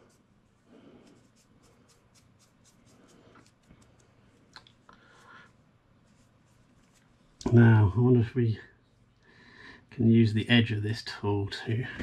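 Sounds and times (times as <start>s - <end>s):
faint rubbing: 0.0s - 4.4s, 5.1s - 7.9s.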